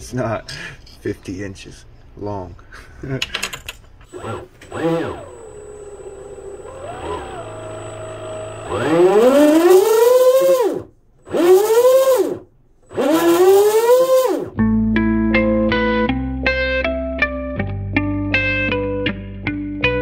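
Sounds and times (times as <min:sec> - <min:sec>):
electric motor revving: 0:04.1 - 0:14.6.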